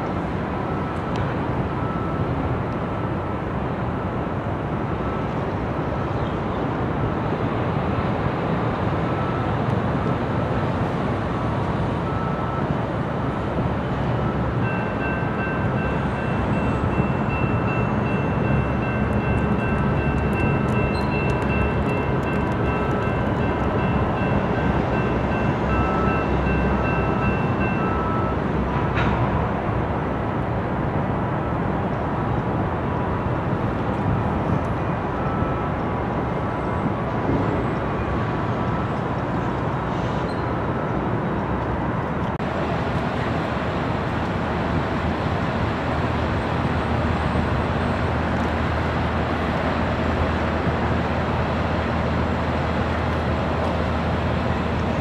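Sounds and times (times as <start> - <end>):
locomotive engines idling: 11.0 - 29.4.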